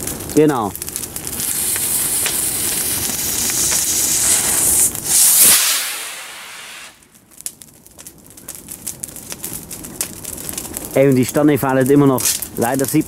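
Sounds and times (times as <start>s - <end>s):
firework whoosh: 0.0s - 7.5s
firework rocket hissing: 1.0s - 7.2s.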